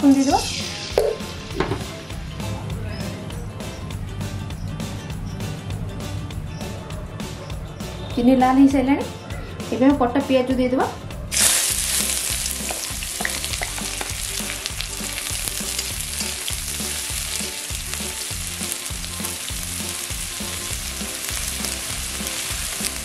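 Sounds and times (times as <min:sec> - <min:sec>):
onions sizzling in hot oil: 0:00.0 - 0:01.2, 0:11.3 - 0:23.0.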